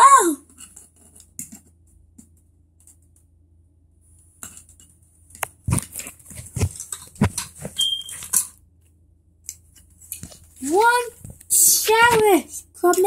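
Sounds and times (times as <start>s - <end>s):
high squeak: 7.8s - 8.2s.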